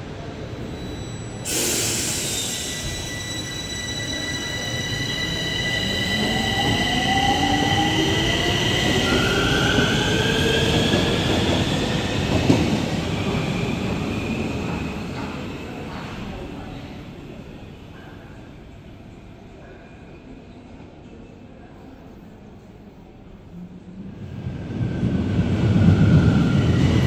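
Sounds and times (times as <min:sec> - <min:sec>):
train rail noise: 0:00.1 - 0:18.4
high wheel squeal: 0:00.7 - 0:07.1.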